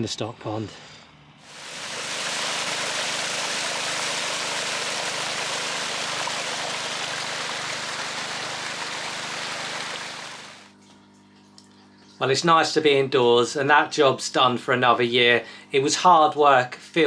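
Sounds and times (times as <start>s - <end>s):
faint steady hum: 0.0s - 17.0s
water gushing from a pipe: 1.5s - 10.7s.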